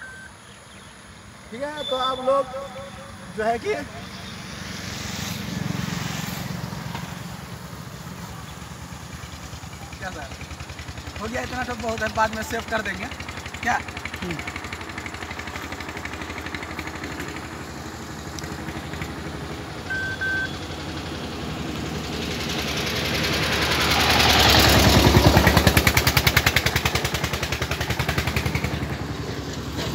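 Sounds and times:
short high beeps: 0.0 - 0.4, 19.9 - 20.6
vehicle engine throbbing: 1.6 - 29.9.

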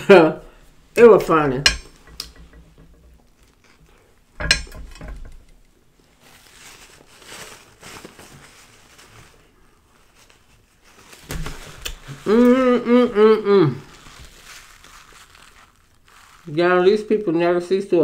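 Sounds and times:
paper napkin rustling: 5.9 - 12.4, 13.8 - 17.4.

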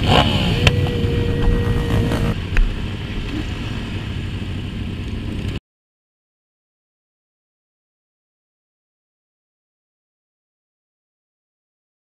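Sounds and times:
steady held tone: 0.0 - 2.9
motorcycle engines: 0.0 - 5.6
wind rumble: 0.0 - 5.6.

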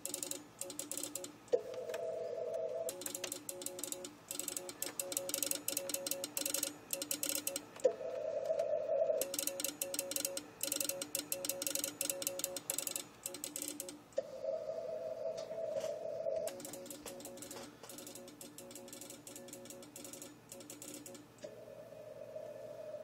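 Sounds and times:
relay clicking rapidly: 0.0 - 1.4, 2.9 - 7.9, 9.2 - 14.0, 16.5 - 21.3
morse code tones: 0.0 - 14.0.

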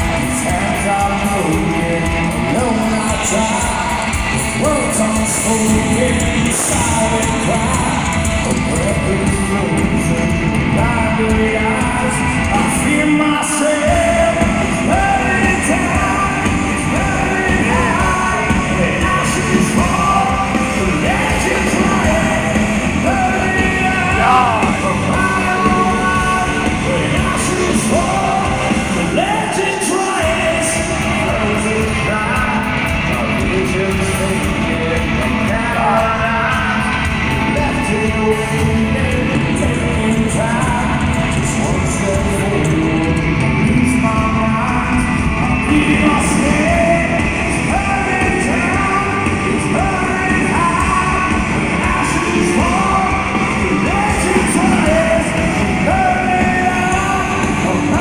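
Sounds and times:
live hard rock band: 0.0 - 58.0
person singing and yelling: 0.0 - 58.0.

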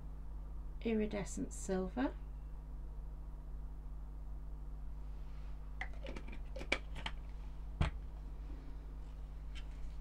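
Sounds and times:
plastic cap clicking and scraping: 5.8 - 7.3.

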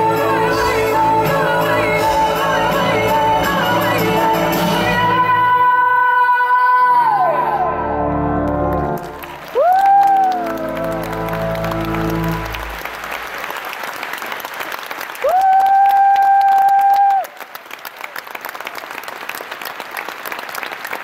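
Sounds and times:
audience applauding: 8.4 - 21.0.

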